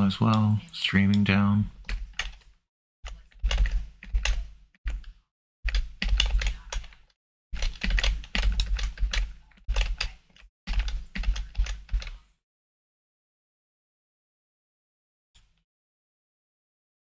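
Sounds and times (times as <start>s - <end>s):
rapid keyboard typing: 1.0s - 12.2s.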